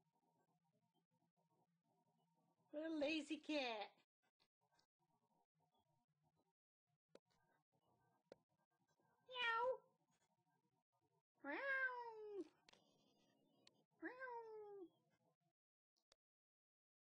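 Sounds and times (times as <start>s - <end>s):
cat meowing: 9.3s - 9.8s, 11.5s - 12.5s.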